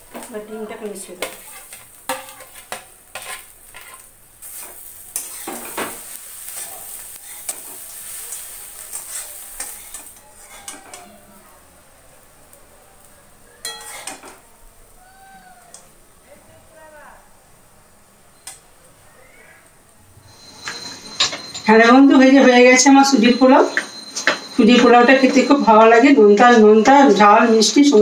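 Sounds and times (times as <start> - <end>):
food sizzling: 0.0 - 28.0
metal spatula scraping wok: 1.1 - 11.0, 13.6 - 14.3.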